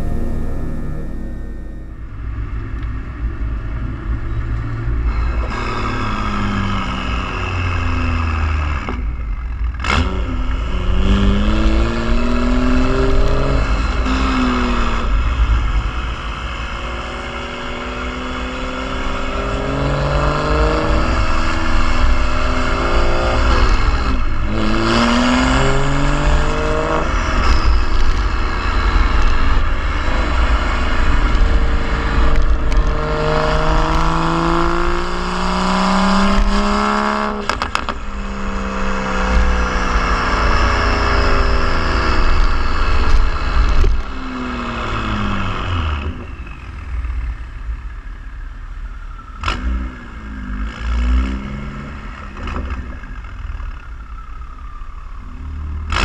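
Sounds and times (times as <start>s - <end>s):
car exhaust revving: 9.8s - 46.2s
exhaust crack: 20.9s - 40.9s.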